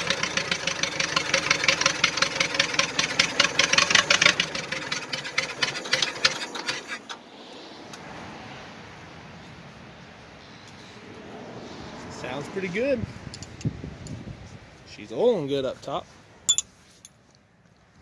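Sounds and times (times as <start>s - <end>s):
tractor engine running: 0.0s - 7.2s.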